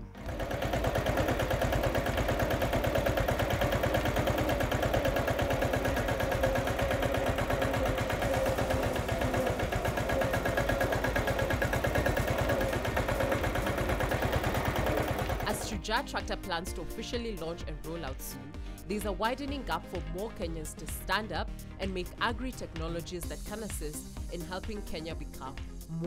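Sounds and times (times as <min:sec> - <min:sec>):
tractor engine running: 0:00.0 - 0:15.8.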